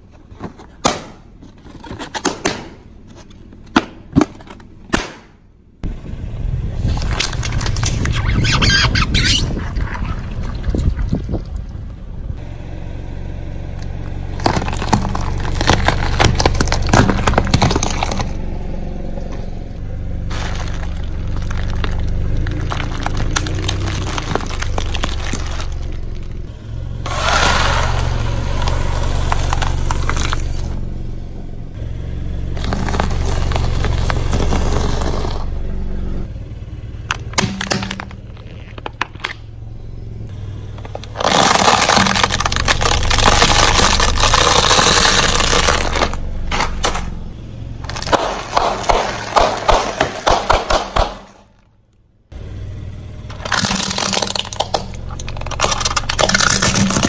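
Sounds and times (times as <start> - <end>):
car engine running low: 5.6 - 57.0
tyre crushing objects: 14.2 - 18.4, 20.3 - 26.3, 32.6 - 35.5, 40.7 - 47.2, 47.8 - 51.6, 53.3 - 57.0.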